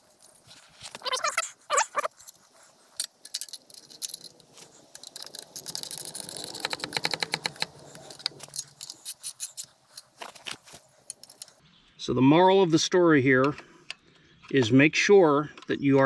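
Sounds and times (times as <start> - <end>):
wrench ratcheting clicks: 3.0 - 9.7
wrench clinking on steel: 3.0 - 10.2.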